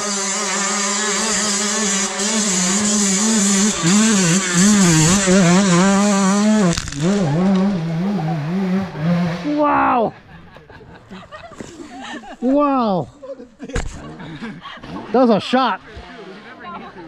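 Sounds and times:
dirt bike engine revving: 0.0s - 9.8s.

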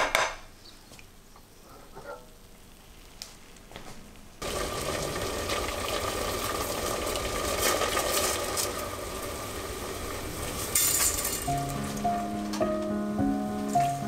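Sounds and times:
water boiling in a pot: 4.4s - 12.5s.

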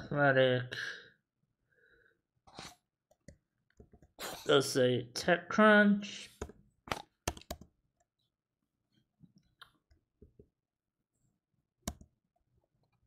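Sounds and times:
keyboard keystrokes clicking: 7.3s - 7.7s.

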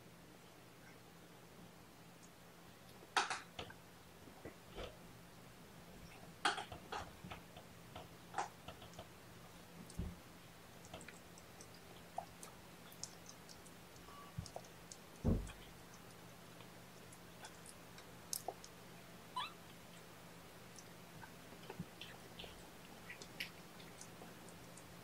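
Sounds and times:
light ticks and rustles: 6.0s - 25.0s
kittens mewing: 19.3s - 19.7s.

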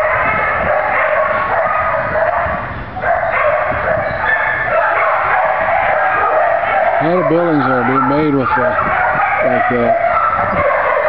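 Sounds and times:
many dogs barking and howling: 0.0s - 11.0s.

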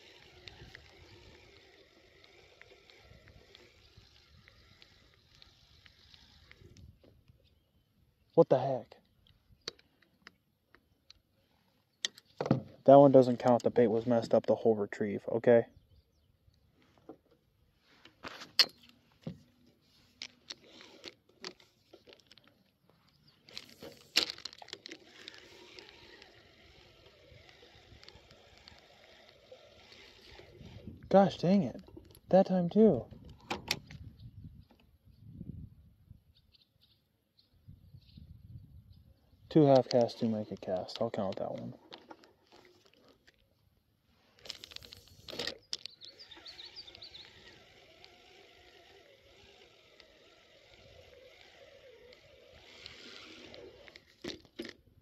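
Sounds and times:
fishing reel clicks: 0.0s - 6.9s, 23.5s - 31.1s, 44.4s - 54.8s
fishing reel whirring: 0.0s - 7.0s, 20.5s - 22.2s, 23.4s - 31.1s, 44.4s - 54.7s
bird chirping: 7.3s - 11.1s, 15.6s - 16.8s, 22.9s - 23.6s, 33.9s - 39.5s, 45.5s - 47.8s.

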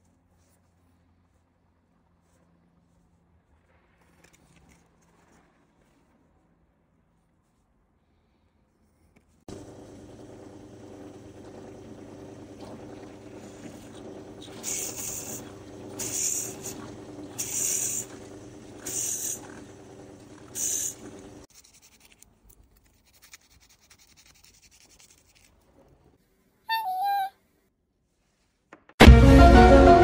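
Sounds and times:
drill press running: 9.5s - 21.4s
drill bit cutting wood hiss: 14.6s - 18.2s, 18.8s - 19.6s, 20.6s - 21.0s
scratching and rubbing: 21.5s - 26.0s.

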